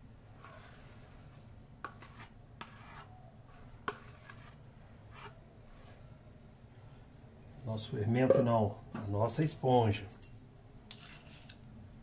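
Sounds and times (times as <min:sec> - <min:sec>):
metal spoon scraping steel bowl: 0:01.8 - 0:06.0, 0:10.9 - 0:11.7.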